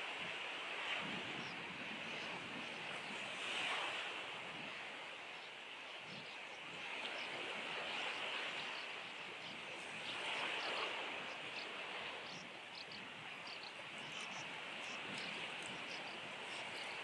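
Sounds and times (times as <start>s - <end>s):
birds twittering chirps: 8.1s - 17.0s.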